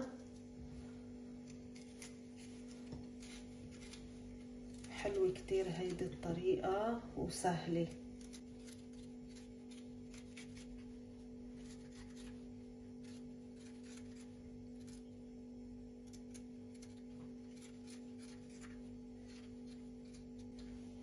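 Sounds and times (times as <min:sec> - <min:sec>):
steady low hum: 0:00.0 - 0:21.0
metal corer scraping vegetable: 0:11.5 - 0:15.1.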